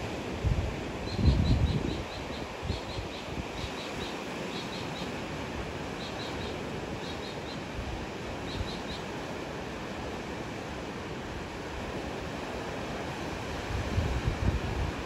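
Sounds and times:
sea: 0.0 - 15.0
wind: 0.0 - 15.0
small bird chirping: 1.0 - 5.1, 6.0 - 7.6, 8.5 - 9.0.

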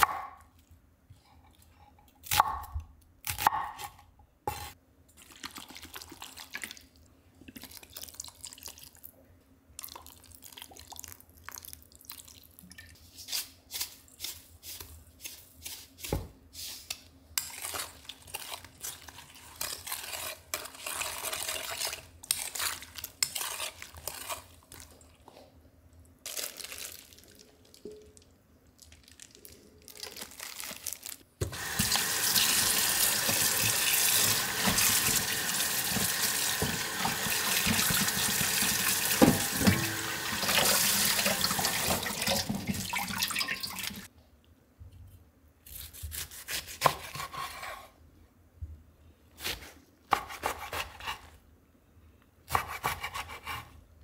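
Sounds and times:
tap water pouring into sink: 31.5 - 44.1.

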